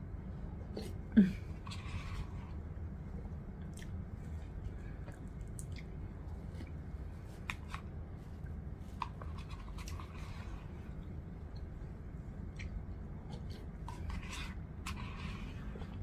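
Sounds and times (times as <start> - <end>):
soft eating sounds: 0.0 - 16.0
steady low hum: 0.0 - 16.0
plastic spoon scraping soup bowl: 13.9 - 16.0.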